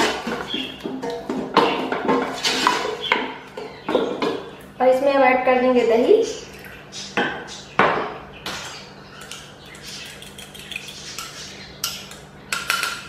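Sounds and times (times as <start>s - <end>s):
kitchenware clatter: 0.0s - 4.5s, 7.2s - 13.0s.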